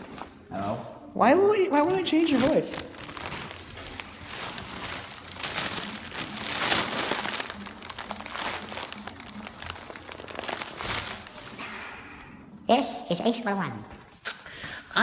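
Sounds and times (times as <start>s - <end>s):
plastic bag crinkling: 1.9s - 12.2s.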